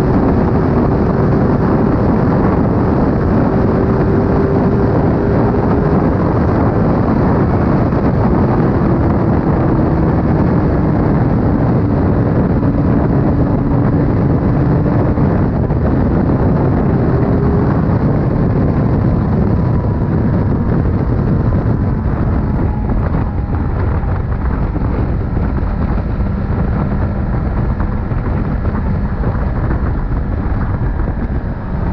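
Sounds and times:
motorcycle engine running: 0.0s - 31.9s
wind rush on microphone: 0.0s - 31.9s.

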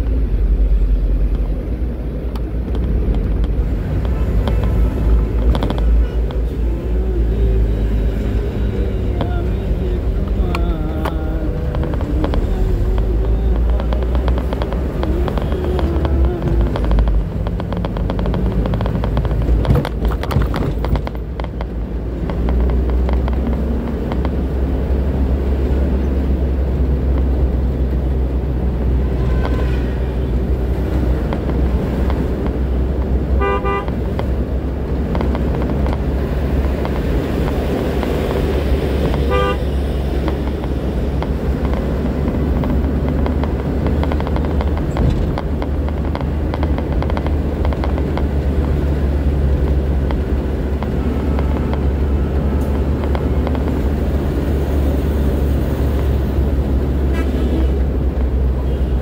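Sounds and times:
road noise: 0.0s - 59.0s
truck engine drone: 0.0s - 59.0s
vehicle horn beeps: 29.1s - 30.0s, 33.4s - 33.9s, 39.2s - 39.8s.

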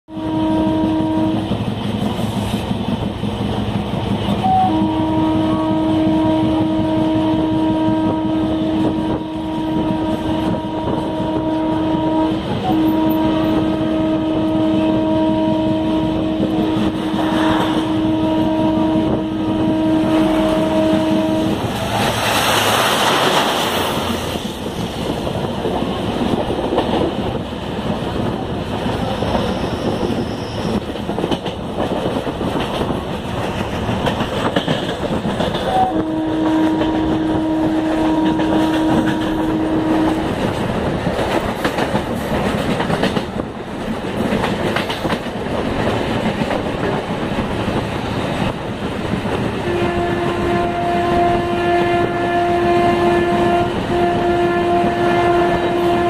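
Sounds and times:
train running noise: 0.1s - 56.0s
rushing noise: 19.2s - 35.9s.

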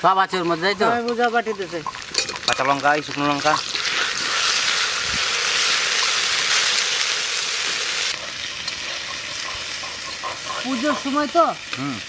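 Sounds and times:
paste sizzling in hot oil: 0.0s - 12.0s.

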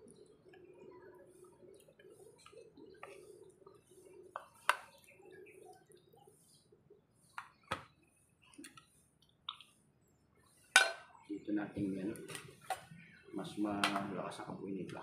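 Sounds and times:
spatula stirring noodles: 0.1s - 11.2s.

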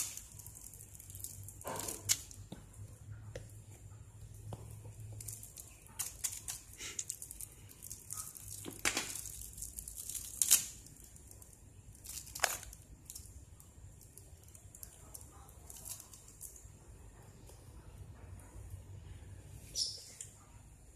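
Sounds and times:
plastic wrapping crinkling: 0.0s - 2.6s, 4.9s - 16.6s.

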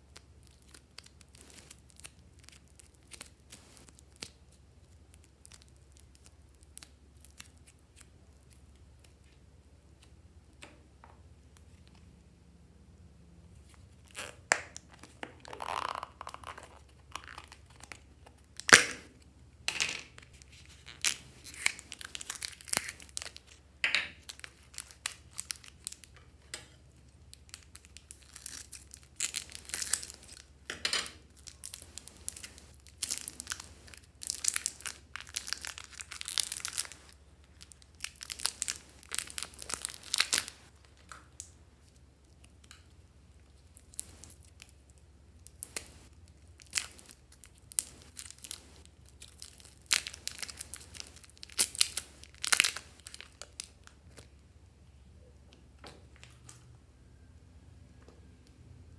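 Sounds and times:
plastic wrappers crinkling: 0.1s - 9.2s, 13.6s - 19.2s, 20.1s - 26.2s, 26.9s - 42.7s, 45.4s - 54.4s.

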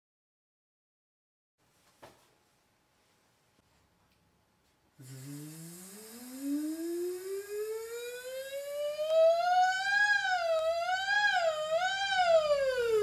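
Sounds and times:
woman's vocal siren glide: 6.3s - 13.0s.

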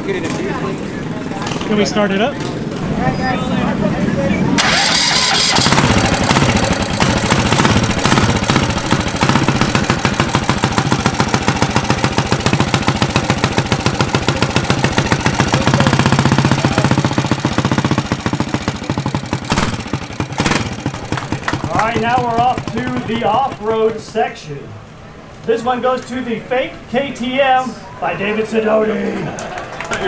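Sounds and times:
small gasoline engine running: 4.6s - 24.0s.

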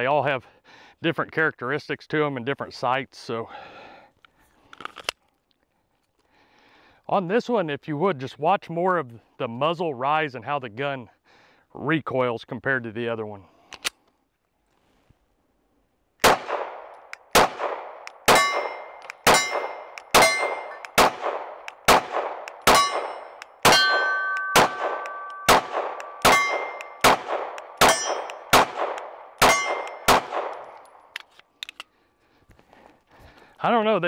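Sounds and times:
pistol shots: 16.2s - 31.0s.

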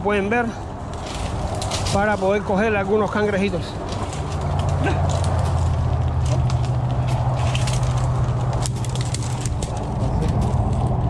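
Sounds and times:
twigs snapping underfoot: 0.9s - 2.4s, 3.8s - 11.0s.

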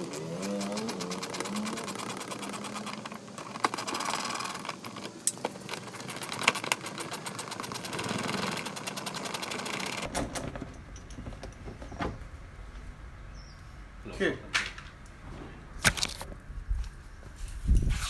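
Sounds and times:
hand tools clicking and rattling: 0.0s - 11.7s.

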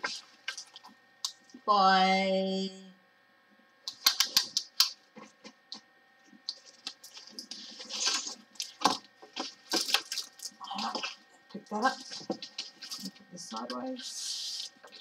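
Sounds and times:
plastic film crinkling: 0.0s - 1.6s, 3.9s - 13.2s.

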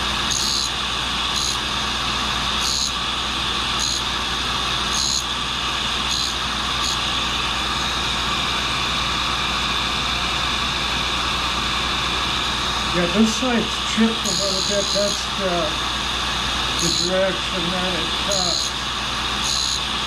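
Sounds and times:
grinding hiss: 0.0s - 7.9s, 12.4s - 20.0s
grinder motor hum and whine: 0.0s - 20.0s.

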